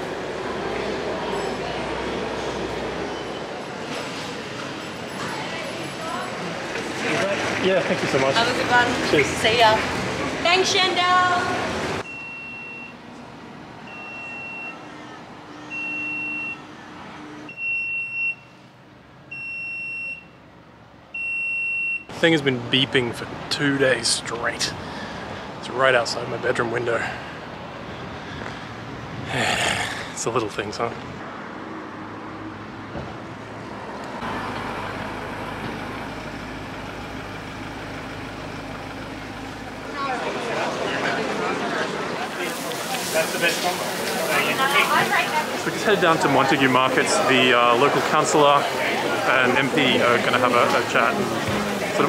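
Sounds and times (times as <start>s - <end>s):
city street traffic noise: 0.0s - 52.0s
alarm beeping: 12.0s - 13.0s, 15.6s - 16.7s.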